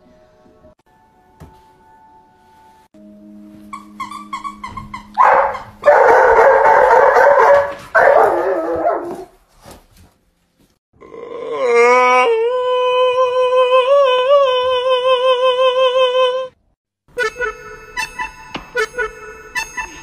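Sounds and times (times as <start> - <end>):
dogs howling: 5.2 - 9.3.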